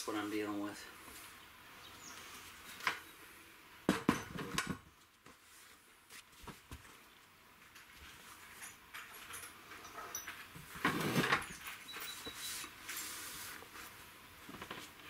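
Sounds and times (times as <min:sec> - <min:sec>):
small metal parts clinking: 0:07.8 - 0:13.1.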